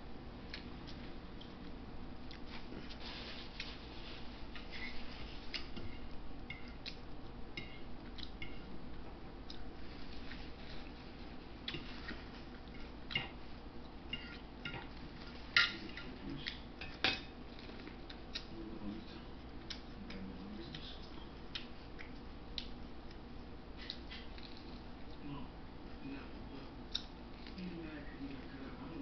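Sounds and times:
chewing and mouth clicks: 0.4s - 3.8s, 6.5s - 8.7s, 9.4s - 16.7s, 17.4s - 18.6s, 19.4s - 25.2s, 26.9s - 27.6s
paper napkin rustling: 2.5s - 5.5s.

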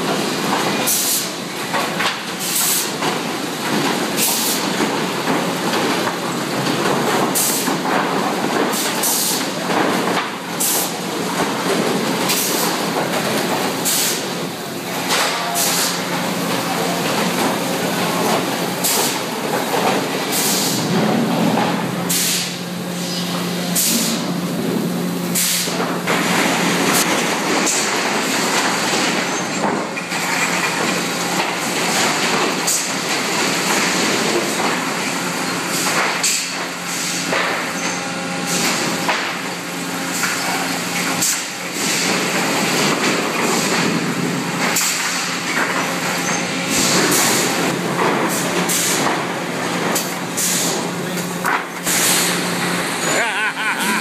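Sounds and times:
sawmill machinery hum: 0.0s - 54.0s
clattering knocks of boards: 39.0s - 39.4s.

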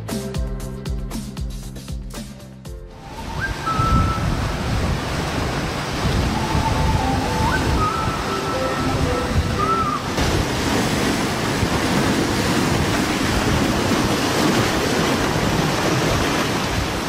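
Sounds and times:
sea waves breaking on rocks: 3.0s - 17.0s
short melody: 6.3s - 10.2s.

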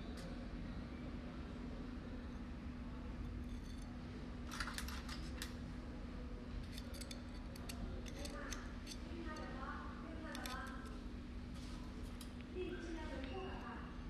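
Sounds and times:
metal clicks and scrapes: 6.6s - 9.5s, 10.3s - 10.9s.

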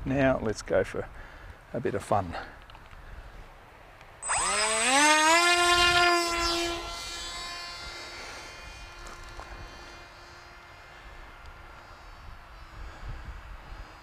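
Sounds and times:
electric motor and propeller whine: 4.2s - 14.0s.

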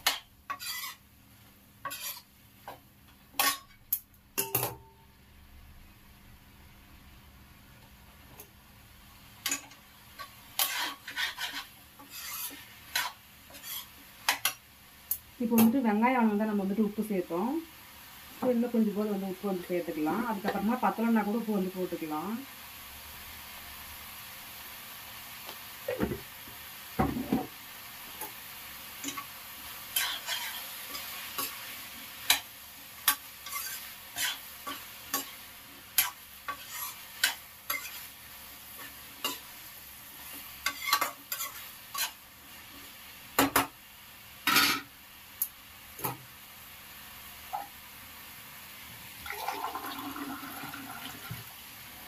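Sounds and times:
frying hiss: 0.0s - 52.0s
metal ladle scraping a pan: 0.5s - 1.0s, 1.8s - 2.3s, 9.5s - 14.5s, 30.0s - 31.6s, 33.1s - 35.4s, 36.0s - 38.1s, 40.6s - 42.2s.

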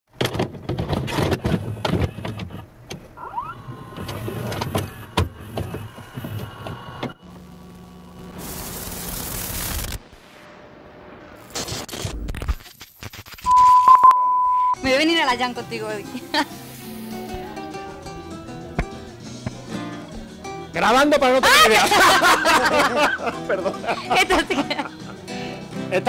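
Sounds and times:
tape static hiss: 1.8s - 14.1s, 14.8s - 18.8s.

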